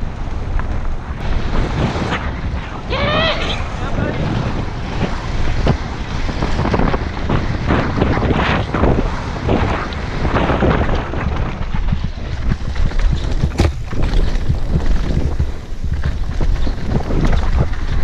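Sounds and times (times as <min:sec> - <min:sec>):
wind buffeting microphone: 0:00.0 - 0:18.0
bike rattling over rough ground: 0:03.8 - 0:18.0
heavy low thumps from bumps: 0:12.5 - 0:17.7.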